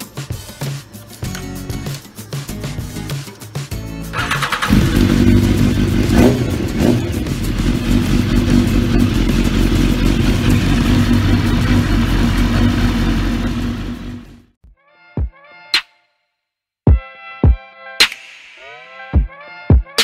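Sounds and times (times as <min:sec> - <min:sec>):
motorcycle engine starting and idling: 0:04.1 - 0:14.5.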